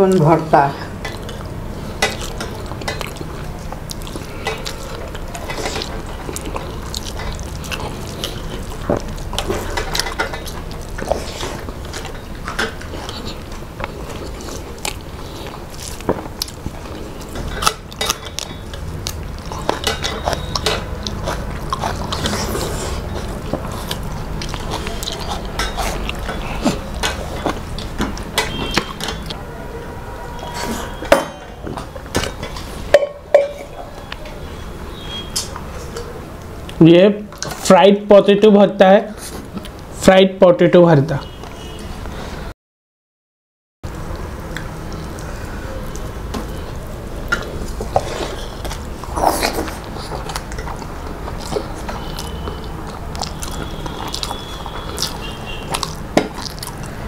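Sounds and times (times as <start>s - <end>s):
fingers mixing rice on plates: 0.0s - 29.4s
chewing and mouth sounds: 0.1s - 29.4s, 30.4s - 37.7s, 39.1s - 39.9s, 43.9s - 57.0s
metal dishes clinking: 9.4s - 11.1s, 17.4s - 18.8s, 19.6s - 21.0s, 25.2s - 29.3s, 30.6s - 33.9s.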